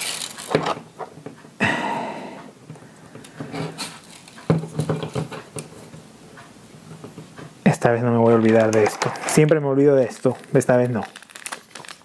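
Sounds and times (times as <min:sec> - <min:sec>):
plastic parts clicking: 0:08.3 - 0:12.0.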